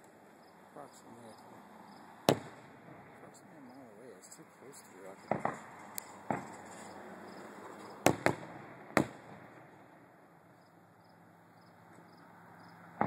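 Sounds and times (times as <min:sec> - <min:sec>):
distant fireworks bangs: 0:02.2 - 0:10.2.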